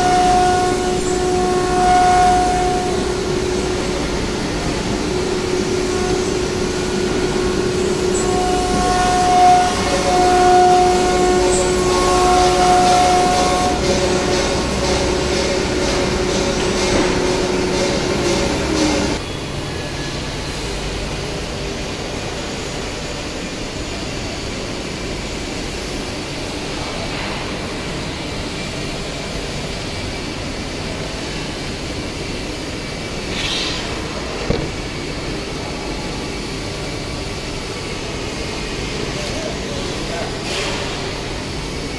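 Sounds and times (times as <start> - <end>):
router spindle whining: 0.0 - 19.2
machinery hum: 0.0 - 41.9.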